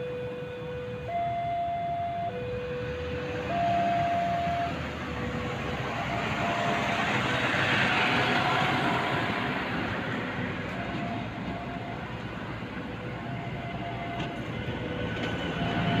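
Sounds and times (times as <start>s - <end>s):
two-tone crossing alarm: 0.0s - 7.3s, 10.7s - 12.2s, 13.0s - 14.5s, 15.2s - 16.0s
railcar rumbling past: 3.1s - 16.0s.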